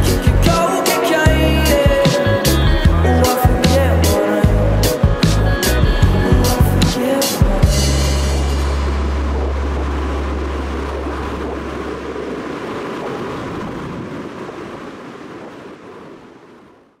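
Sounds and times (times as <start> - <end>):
rushing surf-like wash: 0.0 - 17.0
deep bass note: 7.6 - 12.6.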